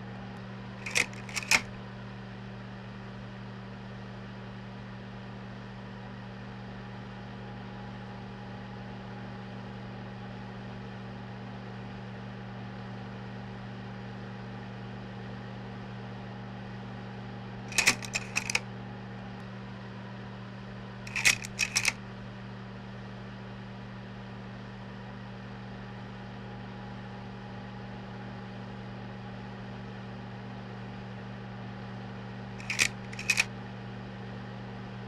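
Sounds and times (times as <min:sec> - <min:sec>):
sharp metallic clicks: 0:00.8 - 0:01.8, 0:17.7 - 0:18.6, 0:21.1 - 0:22.0, 0:32.6 - 0:33.5.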